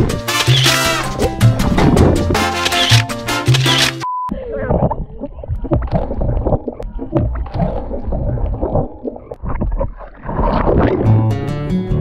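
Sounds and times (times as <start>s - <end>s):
water gurgling: 4.4s - 11.2s
lake water sloshing and splashing: 4.6s - 11.2s.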